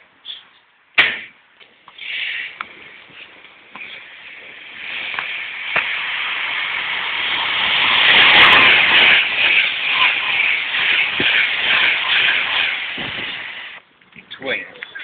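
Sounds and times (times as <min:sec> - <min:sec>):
train passing at speed: 0:04.2 - 0:13.8.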